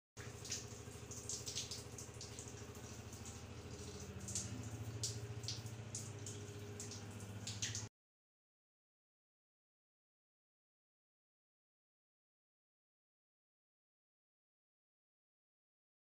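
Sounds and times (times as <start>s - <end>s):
shower spraying water: 0.2s - 7.9s
steady low hum: 0.2s - 7.9s.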